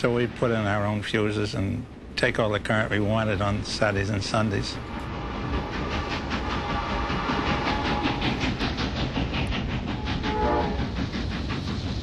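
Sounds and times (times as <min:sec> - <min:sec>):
steam train running past: 0:00.0 - 0:12.0
train whistle: 0:10.2 - 0:10.8.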